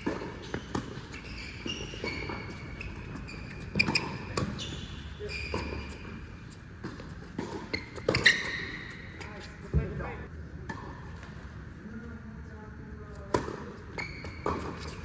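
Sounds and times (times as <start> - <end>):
shoes squeaking: 0.0 - 10.2, 13.8 - 15.0
tennis balls bouncing on court: 0.0 - 11.3, 13.2 - 15.0
tennis balls hitting rackets: 0.0 - 11.4, 13.2 - 15.0.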